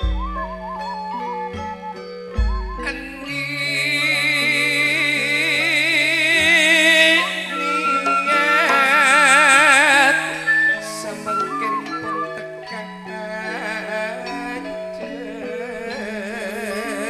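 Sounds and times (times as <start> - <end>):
low bass line: 0.0 - 1.0, 2.4 - 3.4
sung held notes with vibrato: 0.0 - 17.0.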